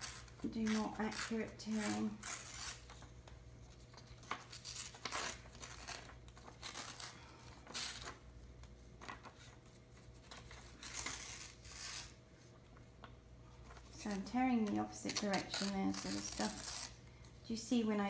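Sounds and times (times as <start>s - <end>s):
magazine page tearing: 0.0s - 3.1s, 4.1s - 8.2s, 10.2s - 12.2s, 14.0s - 17.0s
paper rustling: 1.9s - 12.6s.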